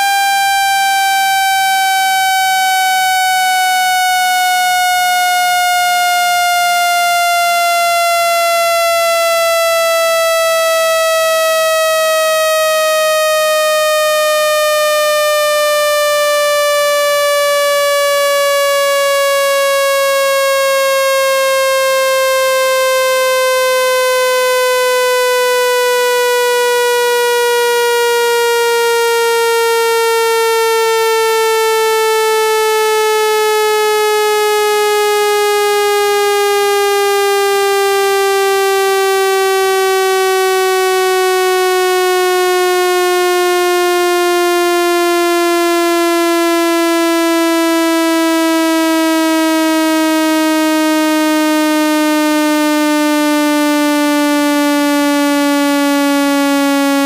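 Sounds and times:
buzzy synthetic tone sliding downward: 0.0 - 6.2.

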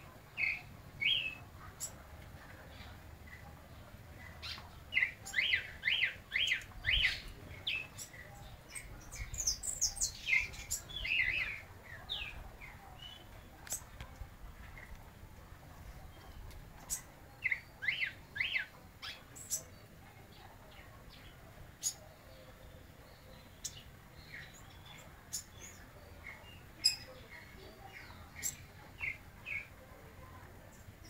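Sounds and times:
bird chips: 23.6 - 25.8.

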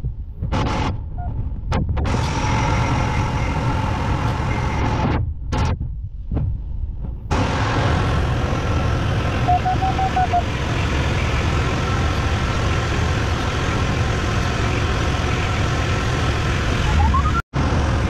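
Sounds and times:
glider engine and airflow noise: 0.0 - 18.0
electronic beeps: 9.4 - 10.4, 16.8 - 17.4.

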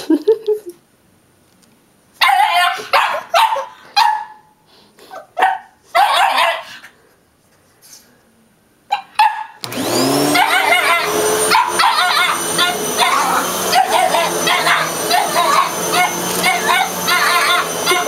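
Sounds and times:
dog barking: 2.2 - 4.6, 5.4 - 6.8, 8.9 - 9.6, 10.3 - 18.0
vacuum cleaner motor running: 9.6 - 18.0.

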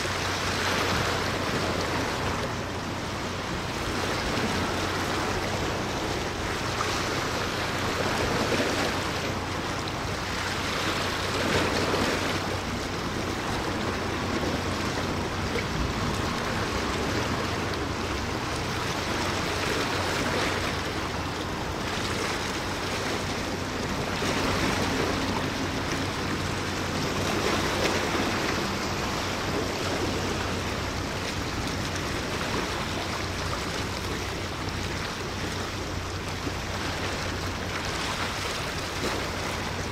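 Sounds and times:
low steady hum: 0.0 - 39.9
wind and water rushing: 0.0 - 39.9.

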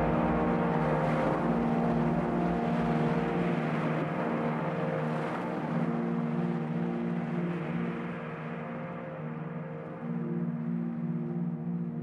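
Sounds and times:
slow sustained low chords: 0.0 - 12.0.

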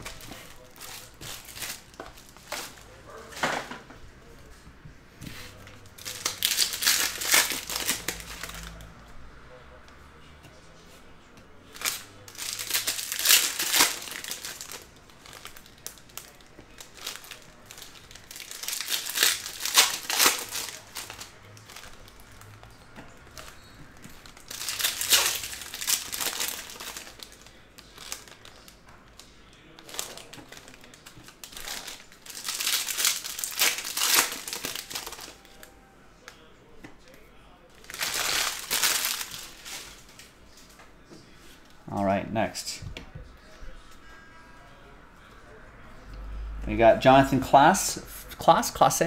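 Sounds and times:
plastic wrapping crinkling: 0.0 - 3.8, 5.5 - 8.9, 11.7 - 36.5, 37.7 - 40.7.

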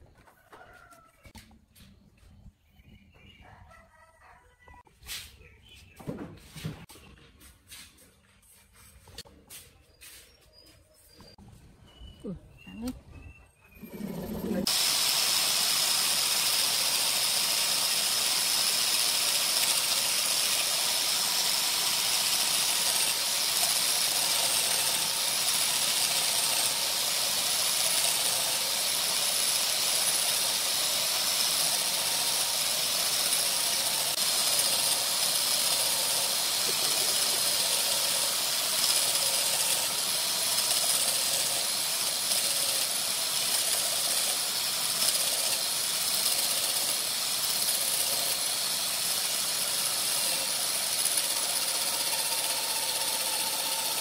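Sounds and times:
workshop machine hissing and whining: 13.8 - 54.0.

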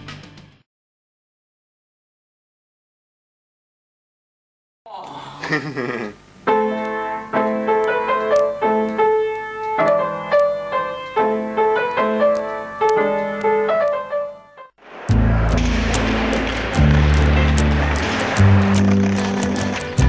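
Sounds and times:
keyboard chords: 6.4 - 20.0.

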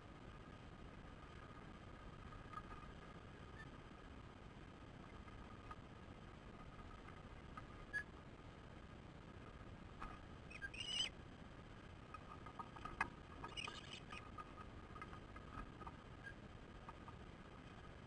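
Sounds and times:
osprey chirping calls: 10.5 - 11.1, 13.4 - 14.2.

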